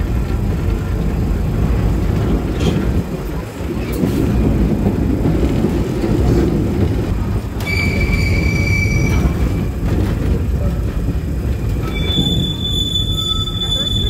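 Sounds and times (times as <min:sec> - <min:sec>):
tram rumbling on rails: 0:00.0 - 0:14.0
high wheel squeal: 0:07.6 - 0:09.8, 0:11.8 - 0:14.0.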